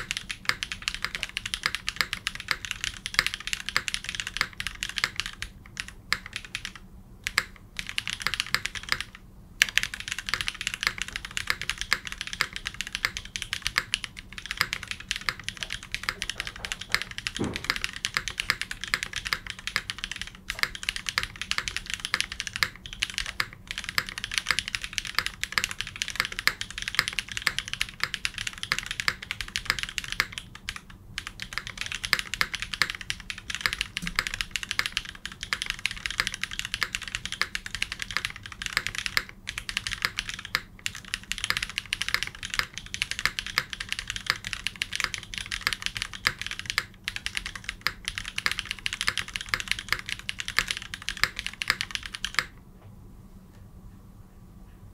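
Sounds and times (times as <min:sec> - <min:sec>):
fast typing on mechanical keyboard: 0:00.0 - 0:52.6.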